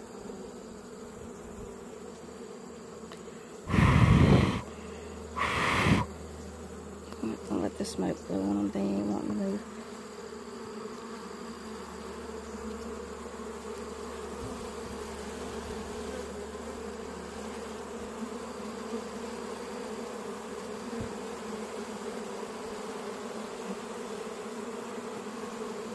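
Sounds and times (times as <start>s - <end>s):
honeybees buzzing: 0.0s - 25.9s.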